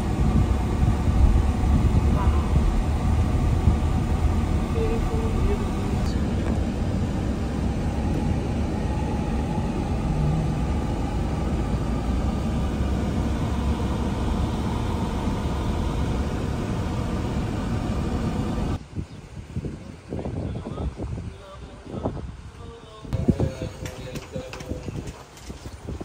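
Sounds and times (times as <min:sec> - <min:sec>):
car engine and tyre noise: 0:00.0 - 0:18.9.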